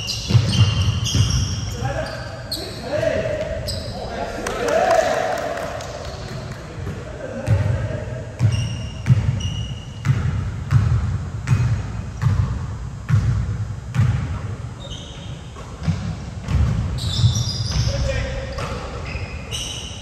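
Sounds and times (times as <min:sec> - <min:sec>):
basketball bouncing in a gym: 0:00.0 - 0:03.9, 0:05.8 - 0:20.0
sneaker squeaks: 0:00.0 - 0:04.4, 0:08.3 - 0:10.8, 0:14.7 - 0:20.0.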